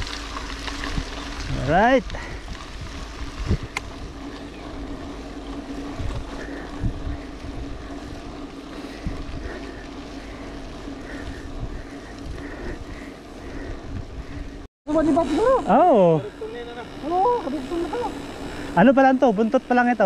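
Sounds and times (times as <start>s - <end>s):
bike tyres on gravel: 0.0s - 20.0s
steady hum: 0.0s - 20.0s
wind on microphone: 0.8s - 4.9s, 5.7s - 8.0s, 11.2s - 14.6s.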